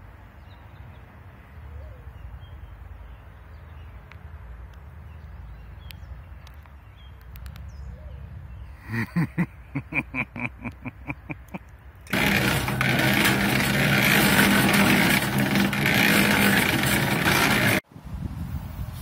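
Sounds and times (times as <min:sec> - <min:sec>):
cement mixer running: 0:12.1 - 0:17.8.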